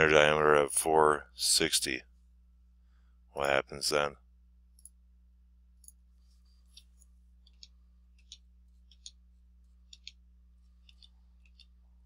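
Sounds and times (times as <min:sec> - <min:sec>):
low steady hum: 0:00.0 - 0:12.0
computer mouse clicks: 0:06.7 - 0:09.2, 0:09.9 - 0:10.2, 0:10.8 - 0:11.8.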